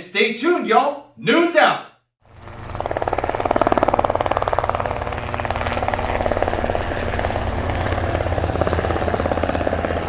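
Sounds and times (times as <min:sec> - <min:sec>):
model aircraft propeller buzzing: 0:02.2 - 0:10.0.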